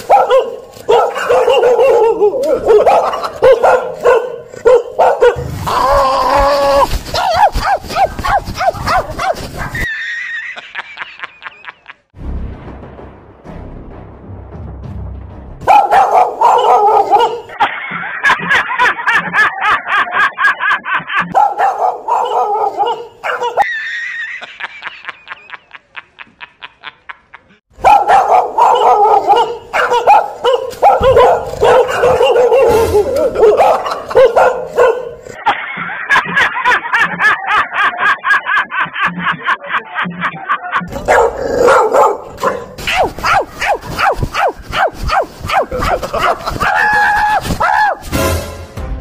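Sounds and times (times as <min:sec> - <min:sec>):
recorded dog barking from speaker: 0:00.0 - 0:05.6, 0:07.1 - 0:09.8, 0:15.6 - 0:17.7, 0:21.3 - 0:23.7, 0:27.8 - 0:35.6, 0:40.8 - 0:48.0.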